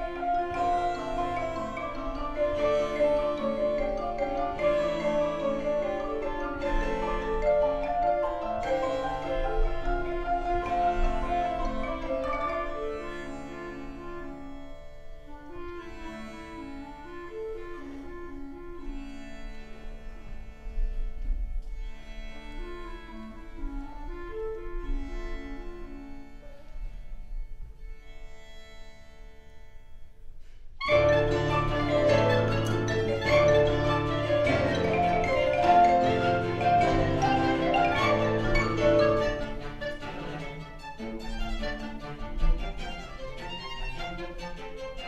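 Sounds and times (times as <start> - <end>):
mallet percussion: 0.0 - 13.4, 30.8 - 40.3
bowed strings: 0.0 - 45.0.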